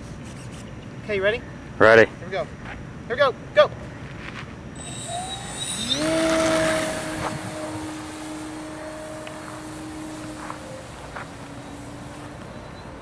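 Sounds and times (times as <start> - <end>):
model plane electric motor whine: 4.8 - 13.0.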